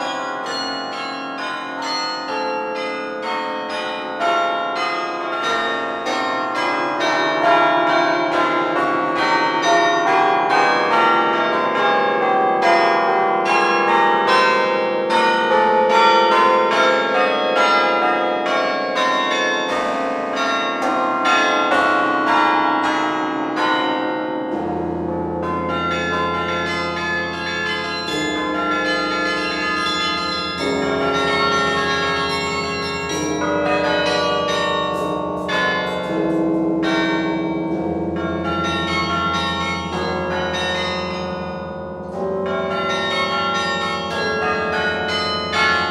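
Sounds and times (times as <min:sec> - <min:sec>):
carillon bells ringing: 0:00.0 - 0:45.9
deep bass bells: 0:23.6 - 0:45.9.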